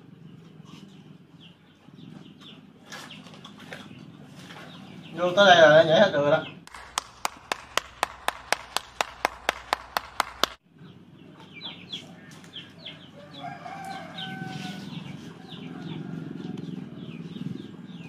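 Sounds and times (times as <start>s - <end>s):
person clapping: 6.7s - 10.6s
chickens clucking: 11.2s - 18.0s
rooster crowing: 12.8s - 17.0s.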